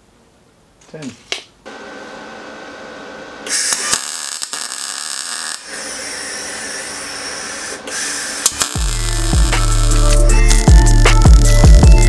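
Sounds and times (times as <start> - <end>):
welding arc crackling and buzzing: 3.4 - 12.0.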